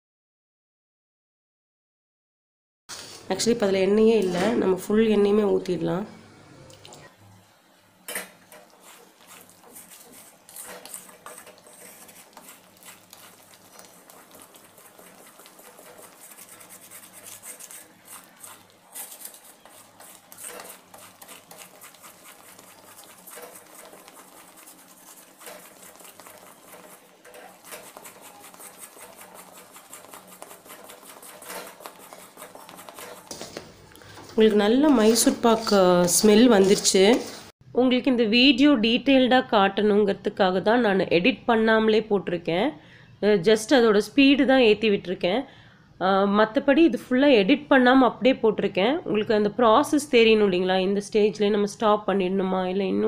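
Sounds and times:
spatula scraping a steel pan: 8.2s - 33.7s, 34.4s - 37.5s.

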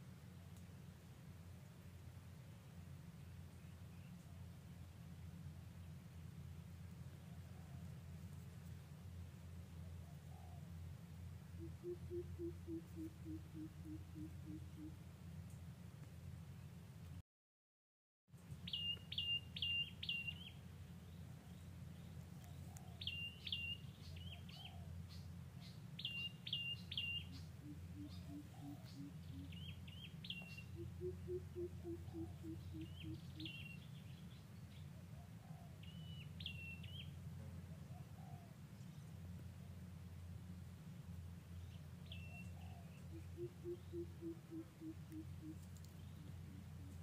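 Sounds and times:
steady low hum: 0.0s - 17.2s, 18.4s - 47.0s
songbird chirping: 9.5s - 15.6s, 18.4s - 40.6s, 41.4s - 47.0s.

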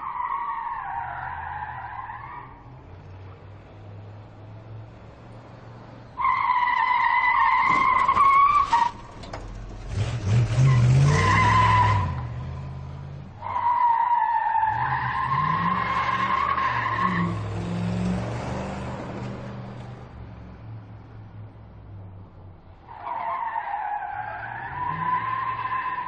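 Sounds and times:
car engine revving: 0.9s - 23.0s
tyres squealing: 6.1s - 19.7s.

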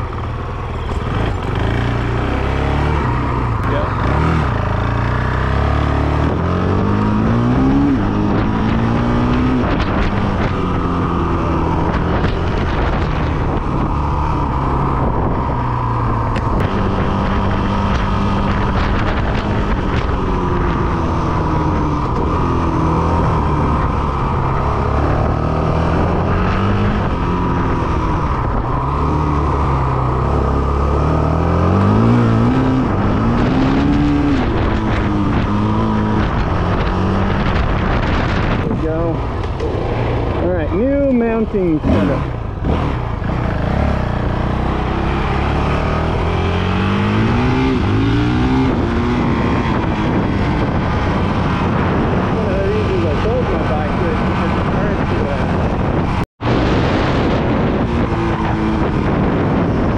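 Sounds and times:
motorcycle engine accelerating: 0.0s - 59.9s.

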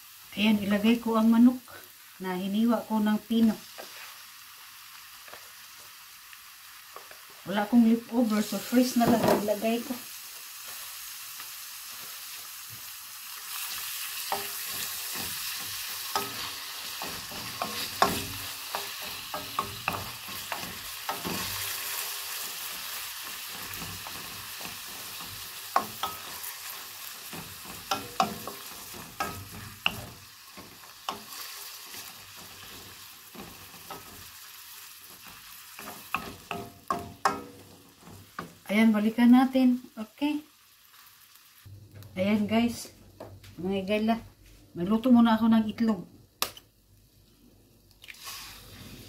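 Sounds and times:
chicken sizzling in oil: 0.0s - 41.7s, 48.1s - 49.0s
wooden spoon scraping wok: 3.4s - 4.3s, 13.5s - 38.7s.

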